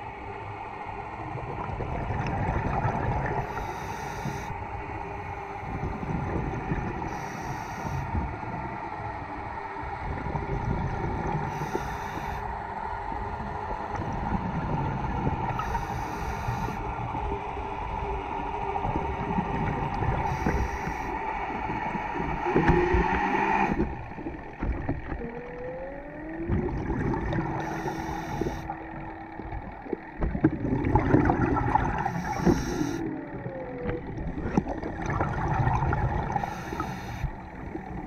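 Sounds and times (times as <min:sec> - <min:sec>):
underwater rumble: 0:00.0 - 0:38.0
scuba regulator hissing: 0:32.1 - 0:33.0.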